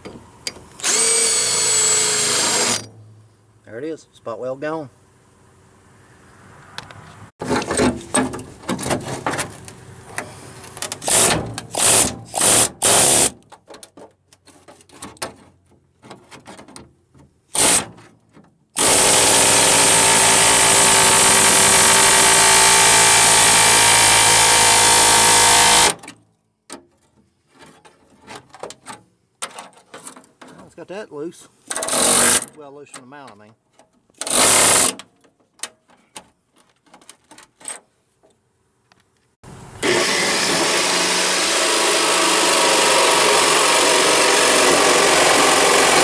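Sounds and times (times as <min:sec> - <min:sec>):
power tool cutting steel: 0:18.8 - 0:26.0, 0:39.8 - 0:46.0.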